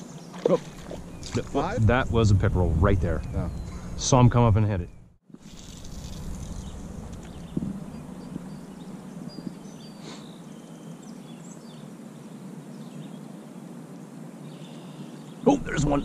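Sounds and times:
low steady hum: 0.1 - 9.9, 15.5 - 16.0.

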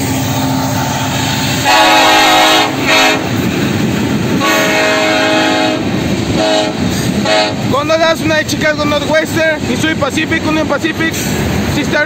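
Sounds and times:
locomotives and freight cars rumbling: 0.0 - 12.0
train air horn: 0.8 - 3.3, 4.4 - 7.6.

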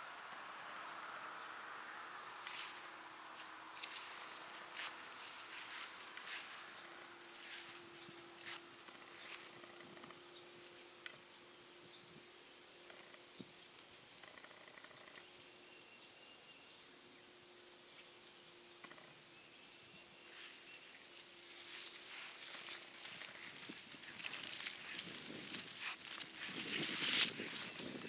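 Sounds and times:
faint insect buzzing: 0.0 - 28.0
soft rustle: 2.4 - 10.1, 20.2 - 28.0.

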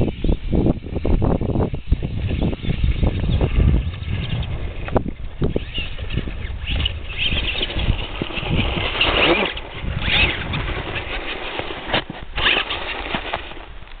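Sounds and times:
tires churning snow: 0.0 - 14.0
toy truck motors whirring: 4.8 - 13.6.

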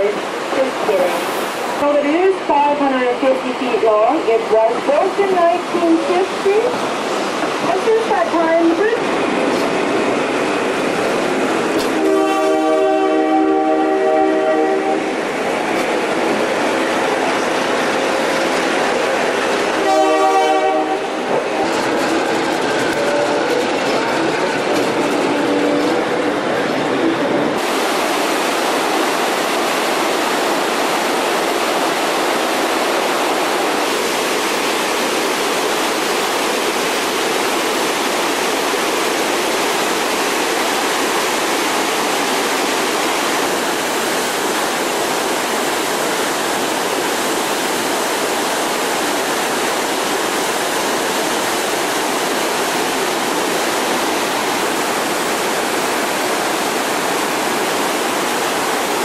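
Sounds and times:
rapids rushing over rocks: 0.0 - 59.0.

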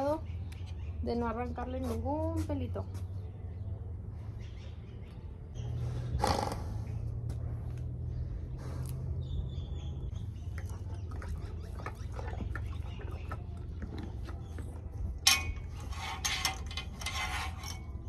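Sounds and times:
steady low hum: 1.6 - 18.0
horse chewing a carrot: 10.2 - 16.2.

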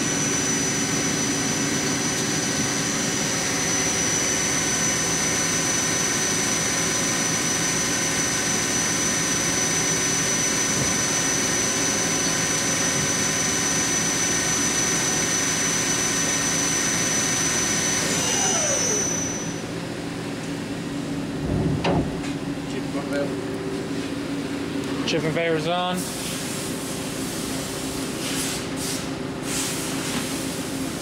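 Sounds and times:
lathe spindle whining: 0.0 - 19.9.

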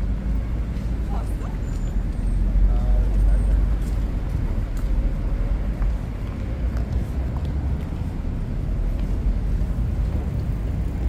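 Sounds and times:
road traffic rumble: 0.0 - 11.0.

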